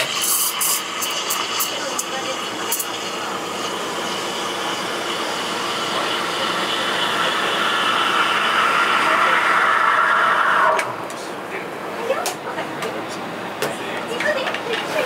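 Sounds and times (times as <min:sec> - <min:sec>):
steam wand hissing in milk: 0:00.0 - 0:10.8.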